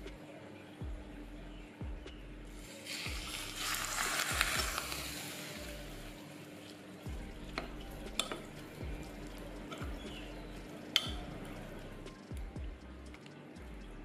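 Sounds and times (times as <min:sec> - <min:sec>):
hot oil sizzling: 0:02.6 - 0:06.9
spoon stirring wet mix in bowl: 0:06.6 - 0:11.6.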